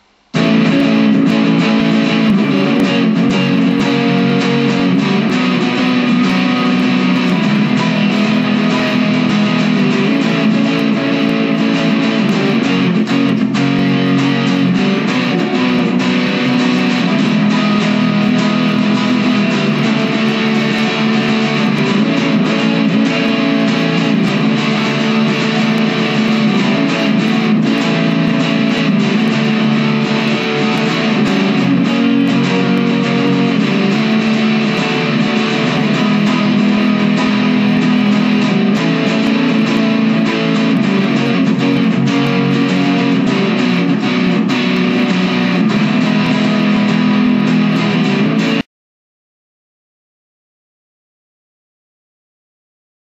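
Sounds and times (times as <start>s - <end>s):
electric guitar music: 0.0s - 48.7s.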